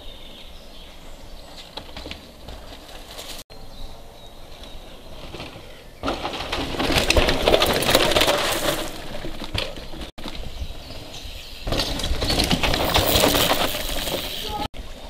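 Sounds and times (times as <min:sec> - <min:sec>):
faint birdsong: 0:00.0 - 0:06.3, 0:09.6 - 0:12.6
bike tyres crunching over soil: 0:01.4 - 0:03.4, 0:04.6 - 0:14.7.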